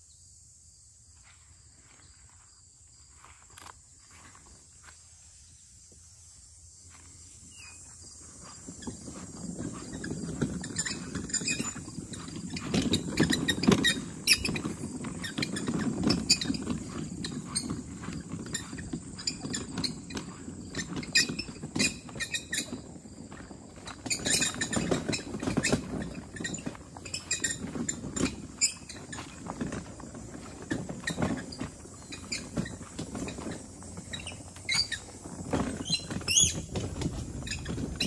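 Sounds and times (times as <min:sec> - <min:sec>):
wagon wheels rolling rumble: 0:06.2 - 0:38.0
wagon bed rattling clicks: 0:08.4 - 0:38.0.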